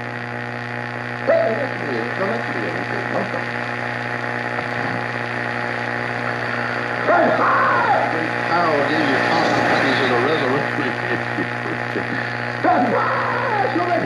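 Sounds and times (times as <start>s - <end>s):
constant low hum: 0.0s - 14.0s
radio static hiss: 0.0s - 14.0s
faint man preaching on radio: 1.2s - 3.5s, 7.0s - 11.0s, 12.5s - 14.0s.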